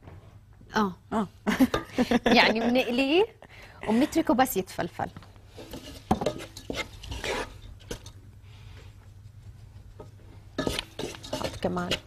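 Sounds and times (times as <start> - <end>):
wooden spatula scraping a pot: 5.5 - 8.2, 10.6 - 12.0.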